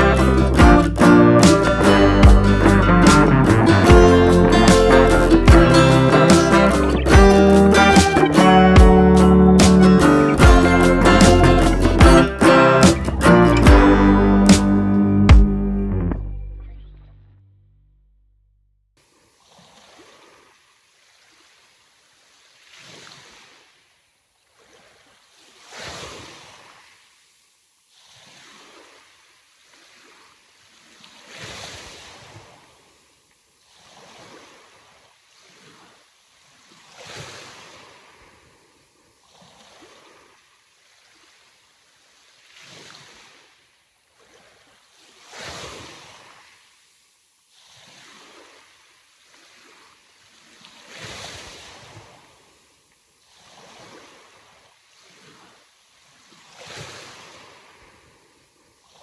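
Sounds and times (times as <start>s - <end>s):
sea waves washing onto shore: 19.4s - 23.8s, 24.6s - 33.0s, 33.6s - 43.6s, 44.2s - 52.6s, 53.2s - 59.0s.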